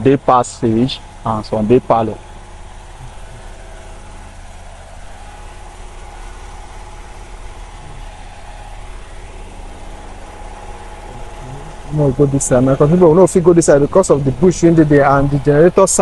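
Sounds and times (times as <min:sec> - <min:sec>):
generator engine running: 0:00.0 - 0:16.0.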